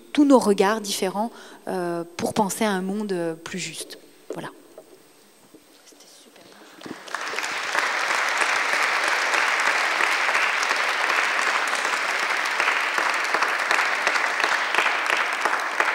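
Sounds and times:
audience applauding: 6.8 - 15.9.

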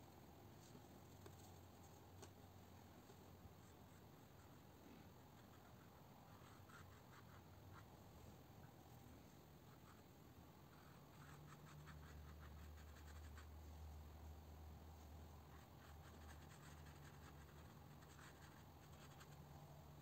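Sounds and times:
low steady hum: 0.0 - 20.0
brush scratching on paper: 5.3 - 7.9, 10.7 - 13.6, 15.5 - 19.4.

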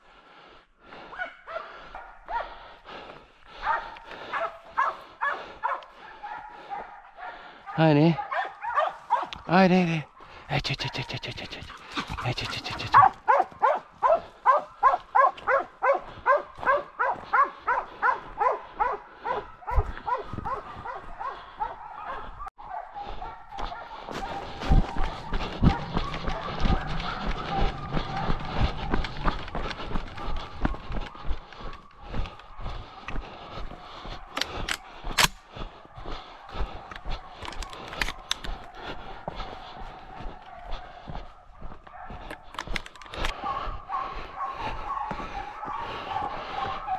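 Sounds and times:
running footsteps on gravel: 0.8 - 6.8, 8.1 - 22.4, 23.0 - 46.9
dog barking in high yelps: 1.1 - 2.6, 3.6 - 9.5, 11.9 - 29.5, 36.0 - 46.9.

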